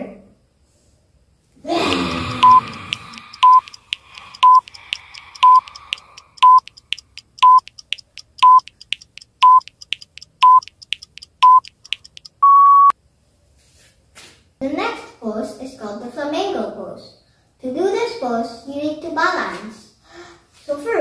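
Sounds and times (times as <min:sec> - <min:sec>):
breathy exhale falling in pitch: 0:01.7 - 0:06.4
clock-like ticks: 0:01.9 - 0:12.4
longer higher beep: 0:02.0 - 0:12.9
short electronic beeps: 0:02.3 - 0:12.9.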